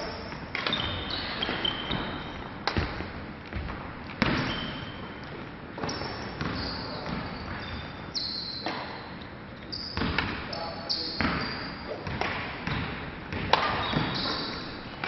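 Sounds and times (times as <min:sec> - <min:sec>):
sneakers squeaking on wooden floor: 0:00.0 - 0:15.0
racket hitting shuttlecock: 0:13.4 - 0:13.9.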